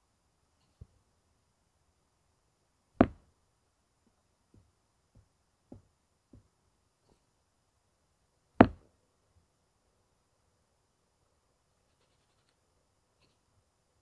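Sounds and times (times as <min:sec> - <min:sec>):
toy thumping on carpet: 0:03.0 - 0:03.2.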